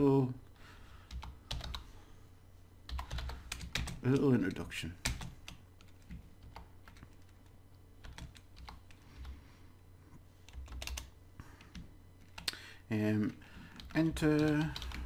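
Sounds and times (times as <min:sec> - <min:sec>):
computer keyboard typing: 0:01.1 - 0:01.9, 0:02.9 - 0:09.4, 0:10.5 - 0:12.6, 0:13.6 - 0:15.0.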